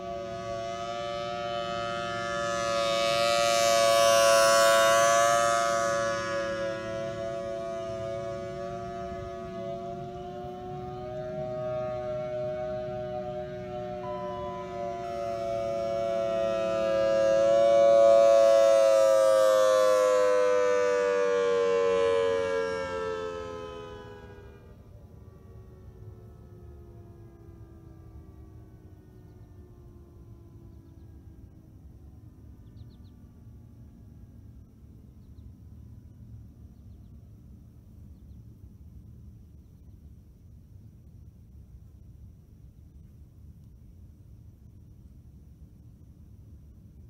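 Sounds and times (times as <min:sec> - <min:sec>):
rotating horn siren: 0:00.0 - 0:32.3.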